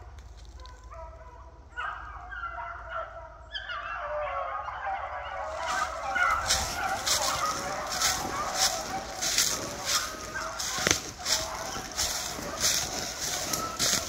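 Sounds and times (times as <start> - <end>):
dogs baying: 0.0 - 14.0
footsteps crunching dry leaves: 5.3 - 14.0.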